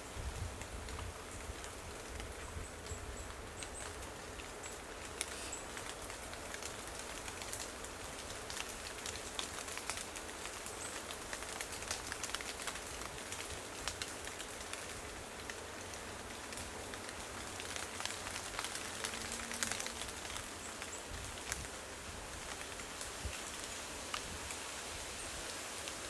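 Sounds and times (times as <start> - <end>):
light rain pattering: 0.0 - 26.0.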